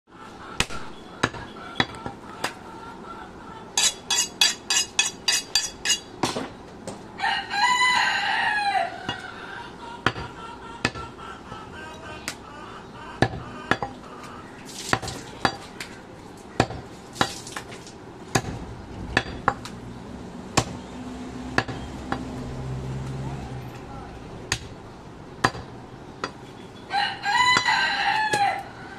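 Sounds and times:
rooster crowing: 0:07.2 - 0:11.0, 0:26.9 - 0:28.9
cleaver chopping on wood block: 0:13.2 - 0:14.0, 0:16.6 - 0:17.4, 0:25.4 - 0:26.4.

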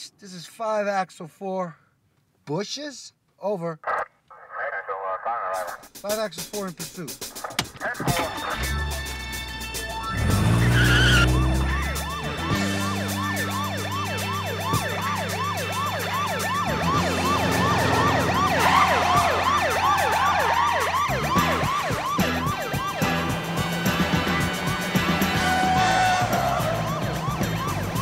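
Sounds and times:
car engine: 0:07.4 - 0:28.0
police siren yelping: 0:07.6 - 0:28.0
tyre screech: 0:10.2 - 0:11.7.

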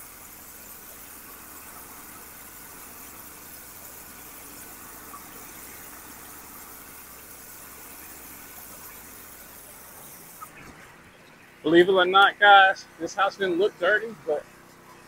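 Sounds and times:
pressure washer spray hissing: 0:00.0 - 0:10.6
low machine hum: 0:00.0 - 0:15.0.

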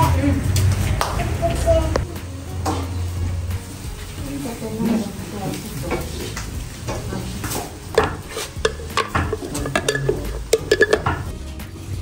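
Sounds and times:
metal utensil clinking on pan: 0:08.0 - 0:11.3.

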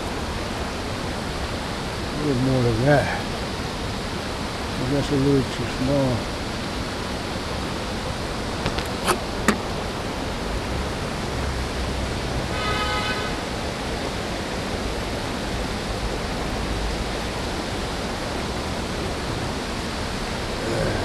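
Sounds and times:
creek water rushing over rocks: 0:00.0 - 0:21.0
brief high tone: 0:20.6 - 0:21.0.

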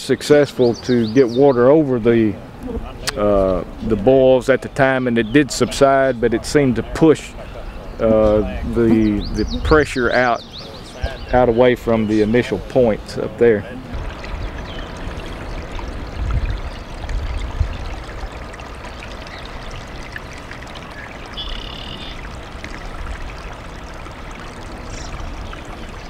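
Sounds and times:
water pouring and trickling: 0:00.0 - 0:26.0
low rumbles: 0:10.8 - 0:21.4.

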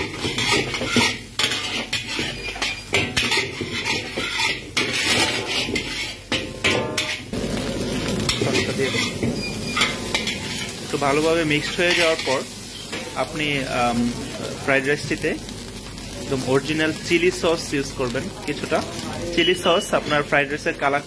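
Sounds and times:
metal spatula scraping wok: 0:00.0 - 0:13.4, 0:19.3 - 0:21.0
food sizzling: 0:00.0 - 0:21.0.

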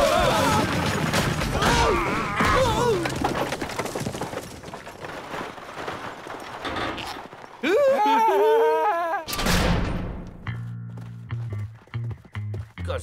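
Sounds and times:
wagon wheels rattling: 0:00.0 - 0:08.0.

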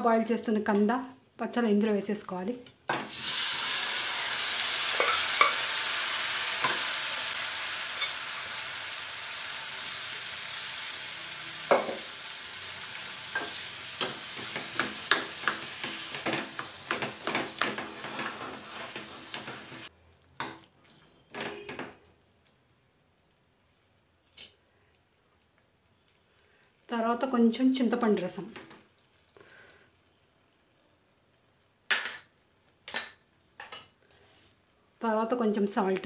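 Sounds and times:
vegetables sizzling in hot oil: 0:02.9 - 0:19.9
spatula scraping metal pan: 0:13.4 - 0:19.8.

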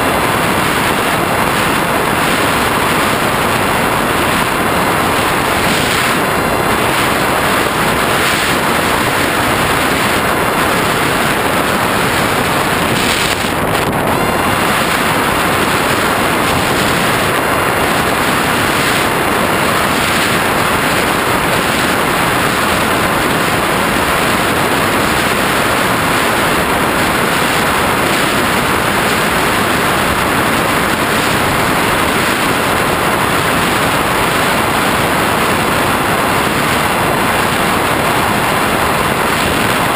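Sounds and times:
airflow rushing over microphone: 0:00.0 - 0:39.9
faint steady whine: 0:00.0 - 0:39.9.

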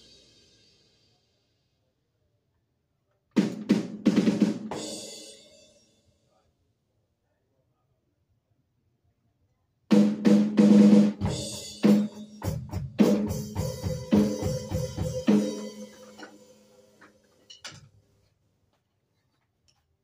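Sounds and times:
electronic cymbal crashes: 0:00.0 - 0:01.2.

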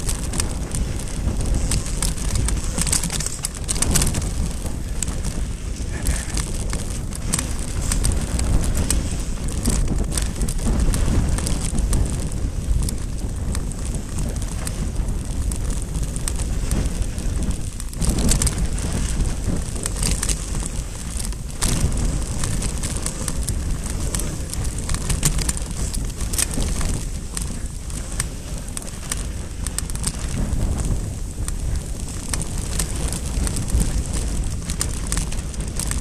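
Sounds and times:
bike rattling clicks: 0:00.0 - 0:36.0
bike tyre noise on dirt: 0:00.0 - 0:36.0
wind buffeting microphone: 0:00.0 - 0:36.0.

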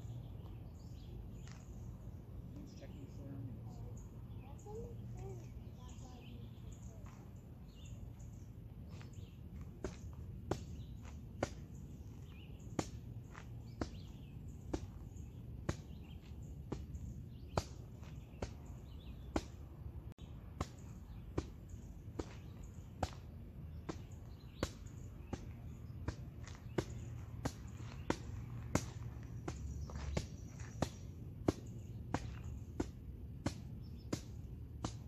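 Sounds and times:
sharp snaps: 0:20.5 - 0:35.0.

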